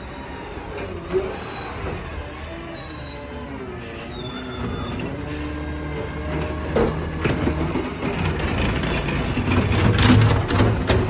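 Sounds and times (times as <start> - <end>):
hydraulic whine: 0.0 - 8.1
garbage truck engine running: 0.0 - 11.0
clunks of arm and cart: 6.2 - 11.0.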